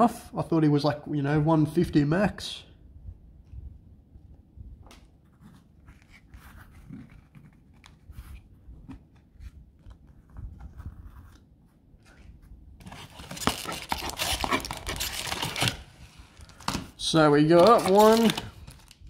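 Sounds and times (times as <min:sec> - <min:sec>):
cards rustling and clicking: 0:05.0 - 0:19.0
crackly packaging rustle: 0:12.0 - 0:19.0.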